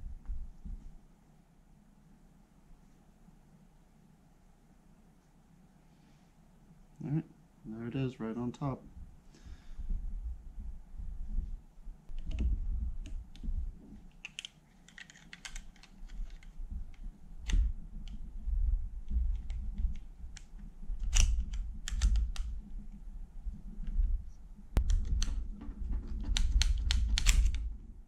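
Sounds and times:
small metal clicks and rattles: 14.1 - 18.2.

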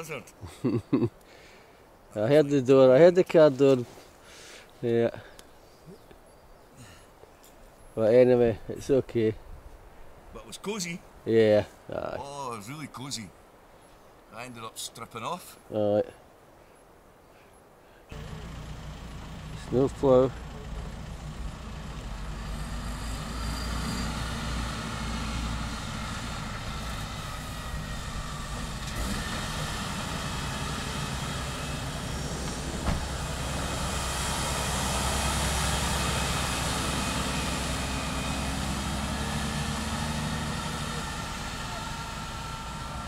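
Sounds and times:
truck engine running: 18.1 - 43.0.

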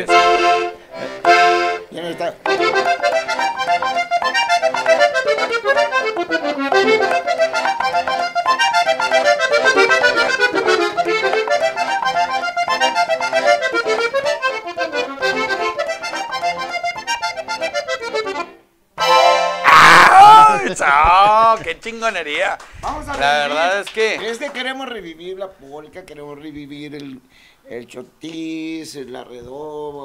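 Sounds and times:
accordion playing: 0.0 - 19.8.

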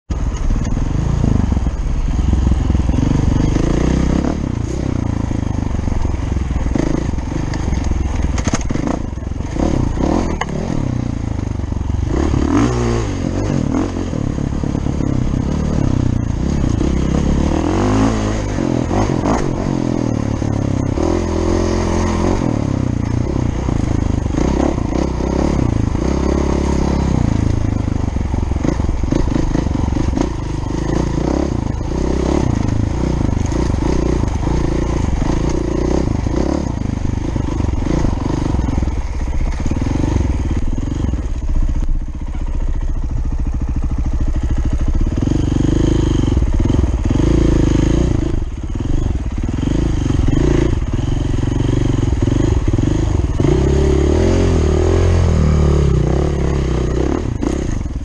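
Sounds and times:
dirt bike engine revving: 0.9 - 41.8, 42.4 - 58.0.

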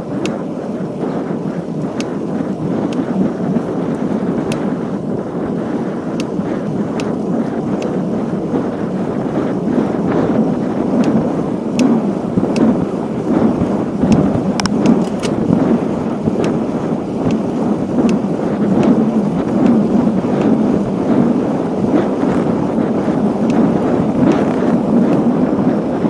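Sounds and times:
wind buffeting microphone: 0.0 - 26.0
light sharp ticks: 0.2 - 0.4, 1.8 - 3.1, 3.9 - 4.7, 6.1 - 8.0, 12.5 - 12.7, 14.0 - 15.5, 16.4 - 16.6, 17.2 - 18.2.

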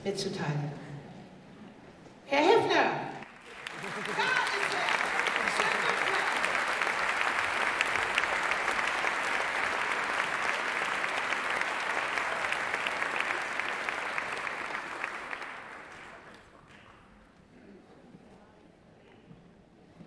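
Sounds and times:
audience applause: 3.2 - 17.1.

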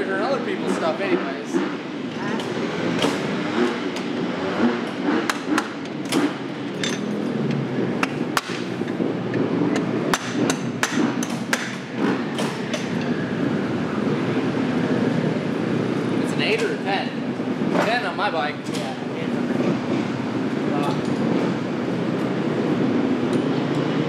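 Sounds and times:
steady background noise: 0.0 - 24.0
tools tapping and knocking on metal: 5.3 - 11.8.

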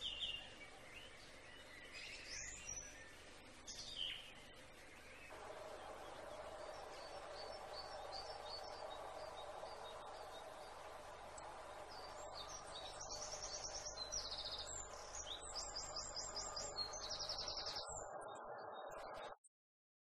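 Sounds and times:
songbirds chirping and trilling: 0.0 - 19.4
steady background hum: 4.6 - 17.8.

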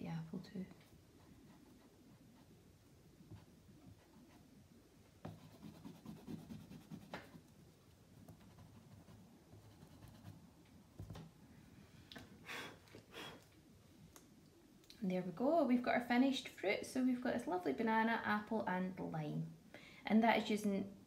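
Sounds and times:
charcoal scratching on paper: 5.2 - 7.5.

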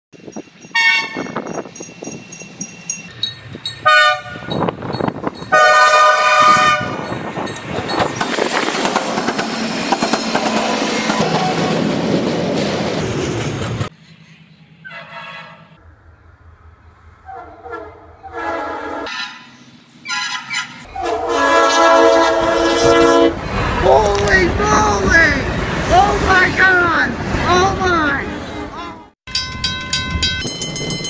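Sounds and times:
crossing bell ringing: 0.2 - 8.5, 29.3 - 31.0
train passing with loud rush: 0.2 - 31.0
distant train horn: 0.7 - 1.4, 3.8 - 4.7, 5.5 - 7.1, 14.8 - 15.8, 17.2 - 23.5
locomotive air horn blasts: 0.7 - 1.4, 3.8 - 4.7, 5.5 - 7.1, 14.8 - 15.8, 17.3 - 23.4.

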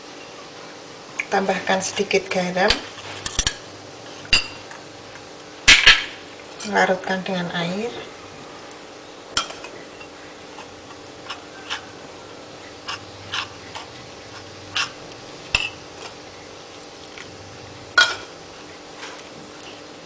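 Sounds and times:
metal spoon stirring batter: 9.4 - 12.0, 12.6 - 17.3.

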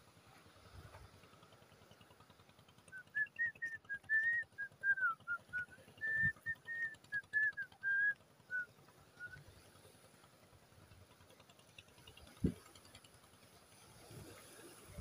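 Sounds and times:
person whistling: 3.1 - 8.6.

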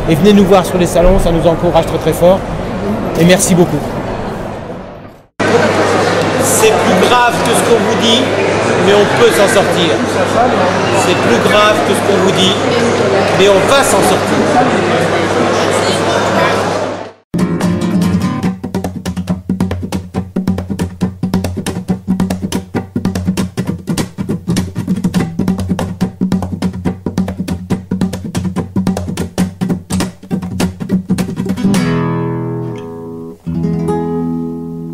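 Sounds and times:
acoustic guitar strumming: 17.4 - 34.9.

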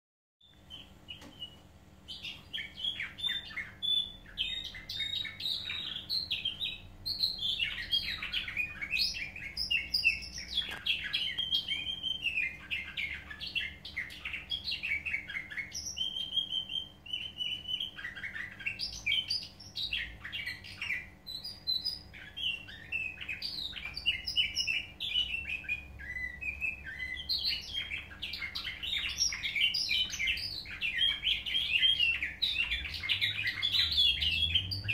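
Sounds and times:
canary singing trills: 0.4 - 34.9.

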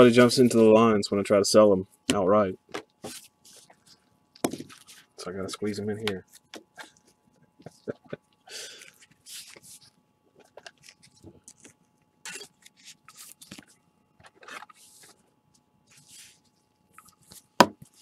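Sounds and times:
trading cards rustling: 8.7 - 15.2.

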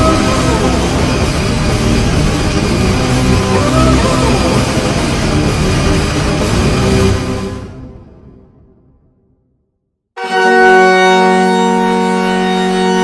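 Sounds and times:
distorted heavy rock song: 0.0 - 7.8
goal horn: 10.2 - 13.0.

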